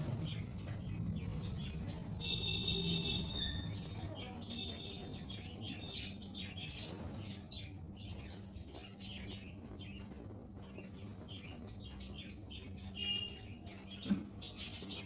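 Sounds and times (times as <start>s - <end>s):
low hum: 0.0s - 4.0s
small birds chirping: 0.0s - 15.0s.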